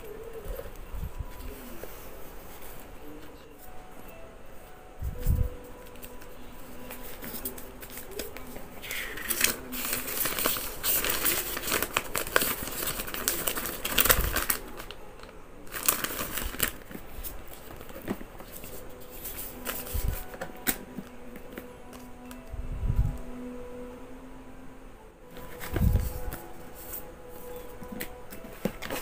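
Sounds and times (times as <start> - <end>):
paper rustling and crinkling: 5.1 - 22.4, 25.3 - 29.0.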